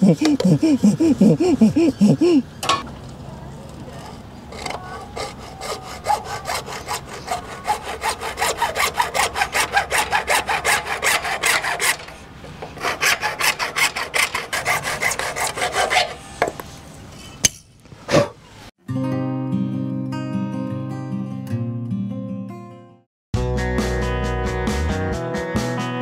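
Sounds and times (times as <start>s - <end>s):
hand saw cutting plastic pipe: 4.0s - 16.4s.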